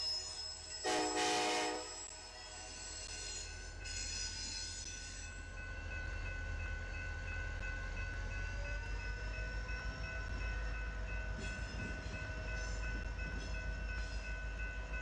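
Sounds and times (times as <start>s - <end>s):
locomotive horn blast: 0.8s - 2.0s.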